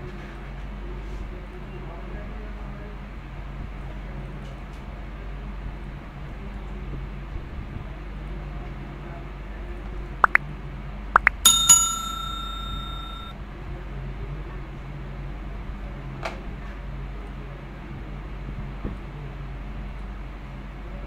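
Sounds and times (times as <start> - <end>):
bright bell ding: 11.2 - 13.3.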